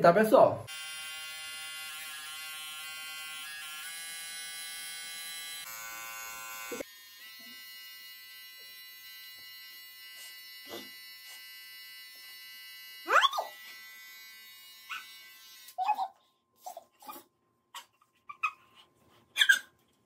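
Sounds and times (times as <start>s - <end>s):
electric hair clipper buzzing: 0.7s - 15.8s.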